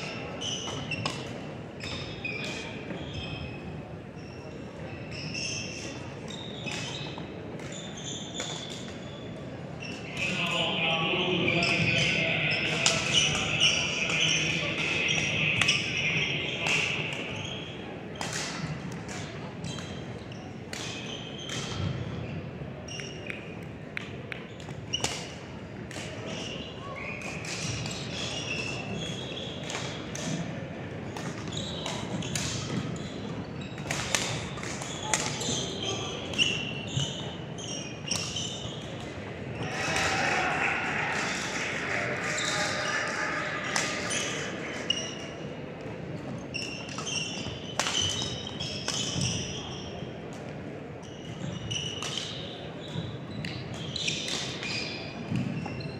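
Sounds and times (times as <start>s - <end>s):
shoes squeaking on court floor: 0.0s - 10.8s, 11.4s - 23.4s, 26.2s - 30.5s, 31.1s - 50.2s, 51.0s - 55.9s
background voices: 39.6s - 45.0s.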